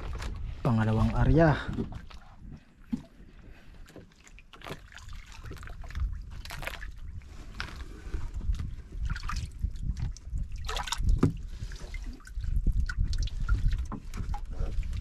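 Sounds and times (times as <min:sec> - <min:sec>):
water lapping against boat hull: 0:00.0 - 0:15.0
small splashes and drips: 0:03.9 - 0:07.8, 0:08.5 - 0:15.0.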